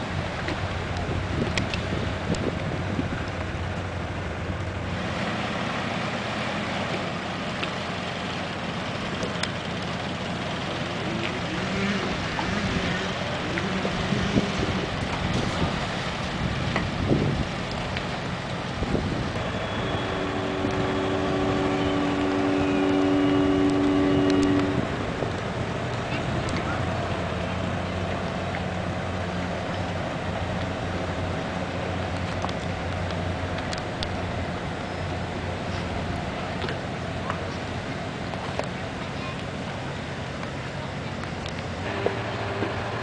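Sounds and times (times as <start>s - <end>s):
wind on microphone: 0.0s - 3.8s, 12.1s - 18.0s, 18.7s - 27.1s
ship engine rumble: 0.0s - 43.0s
ship horn blast: 11.1s - 15.7s, 19.3s - 29.1s, 41.8s - 43.0s.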